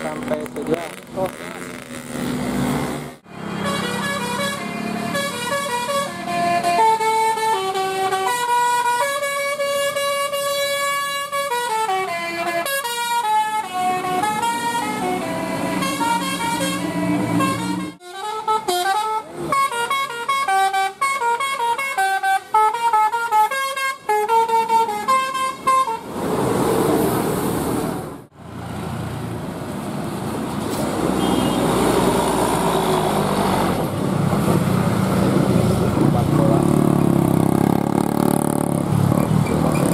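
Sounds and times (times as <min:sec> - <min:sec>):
traffic engine and road noise: 0:00.0 - 0:39.9
multi-tone air horn melody: 0:03.6 - 0:26.1.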